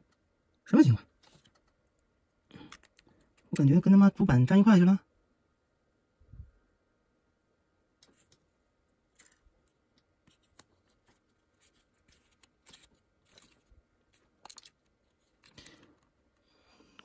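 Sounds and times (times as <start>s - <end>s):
plastic parts clicking: 1.2s - 3.6s, 9.2s - 16.2s.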